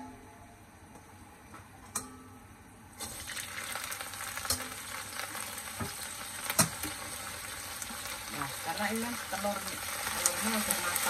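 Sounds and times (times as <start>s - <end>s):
spinach sizzling in hot oil: 3.0s - 11.0s.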